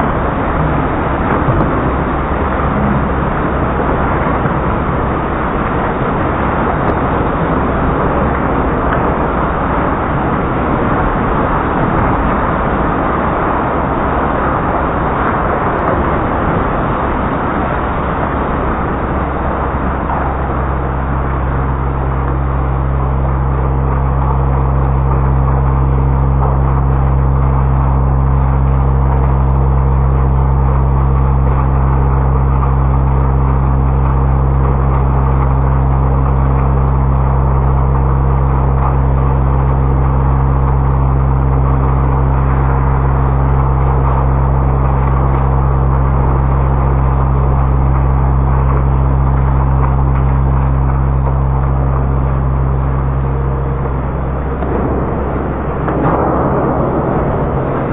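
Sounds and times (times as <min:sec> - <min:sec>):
low machinery hum: 0:00.0 - 0:57.9
rushing noise: 0:00.0 - 0:57.9.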